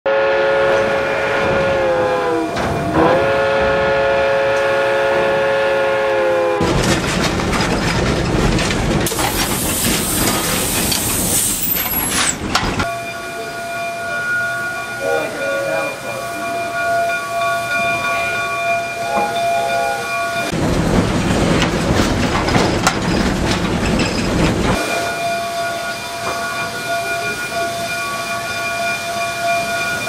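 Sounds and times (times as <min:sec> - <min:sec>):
steam locomotive chime whistle: 0:00.1 - 0:06.6, 0:12.8 - 0:20.6, 0:24.8 - 0:30.0
rush of steam: 0:08.9 - 0:18.6, 0:23.9 - 0:30.0.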